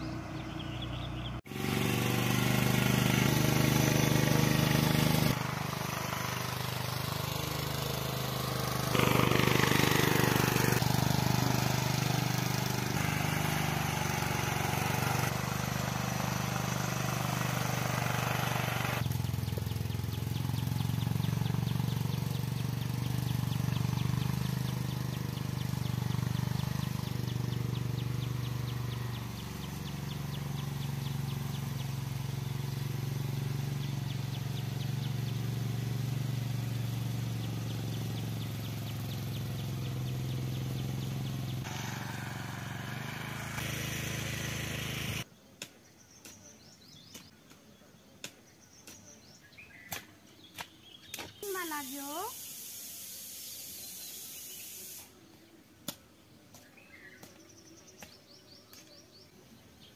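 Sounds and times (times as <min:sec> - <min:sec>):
tractor engine droning: 0:00.0 - 0:45.3.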